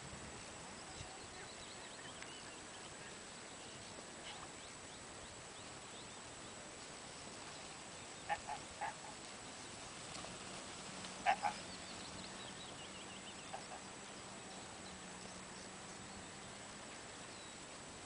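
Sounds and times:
faint outdoor hiss: 0.0 - 18.0
short animal calls: 8.3 - 9.1, 11.2 - 11.6.

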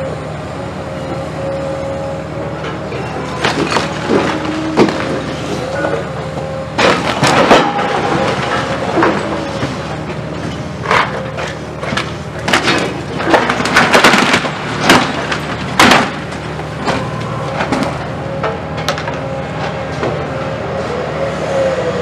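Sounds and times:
diesel engine running: 0.0 - 22.0
masonry cracking and crashing: 3.3 - 5.8, 6.8 - 18.0.

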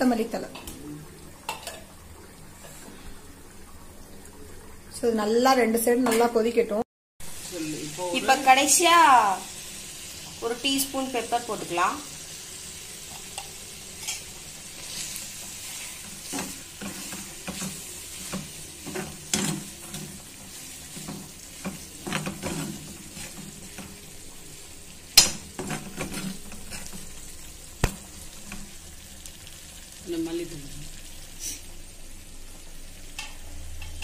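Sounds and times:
meat sizzling in an iron pan: 7.2 - 34.0
spatula scraping a pan: 13.0 - 24.0, 25.5 - 27.2.

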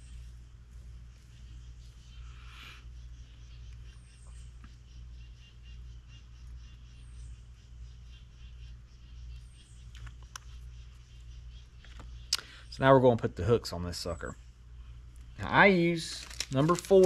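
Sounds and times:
faint rapid chirping: 0.0 - 17.0
steady low hum: 0.0 - 17.0
small clicks: 9.8 - 10.6.

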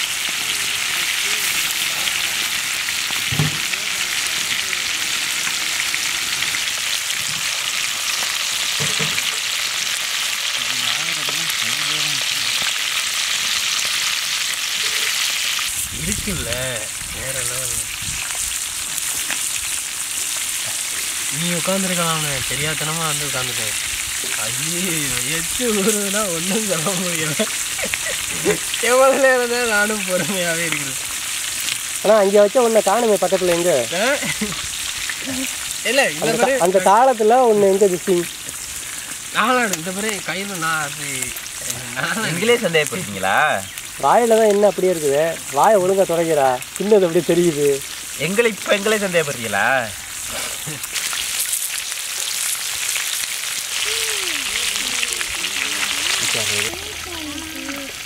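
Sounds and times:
chicken frying in oil: 0.0 - 58.0
man talking: 10.6 - 12.6, 15.9 - 18.0, 20.7 - 27.5, 28.3 - 31.0, 32.0 - 34.6, 35.3 - 38.3, 39.3 - 50.8, 56.2 - 56.8.

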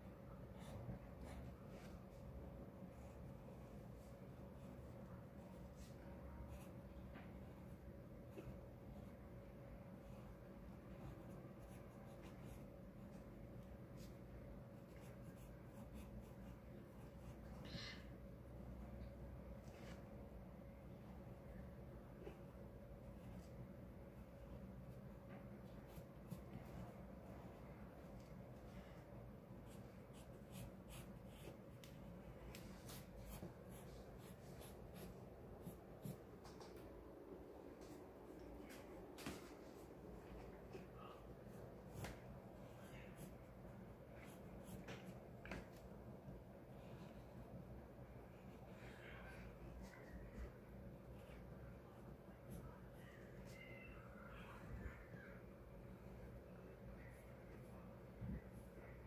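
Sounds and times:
faint steady hum: 0.0 - 59.0
pencil scratching on paper: 3.9 - 7.6, 9.9 - 13.2, 14.8 - 17.4, 29.6 - 36.4.

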